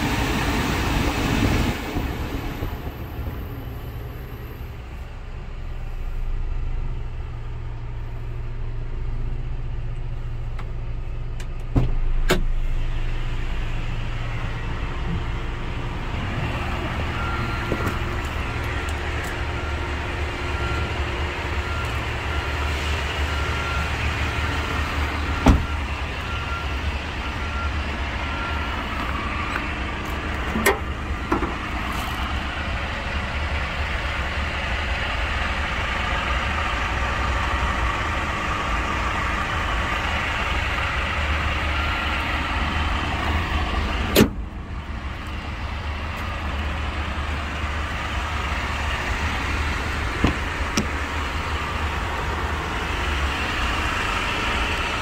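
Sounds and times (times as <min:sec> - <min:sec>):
truck engine idling: 0:00.0 - 0:55.0.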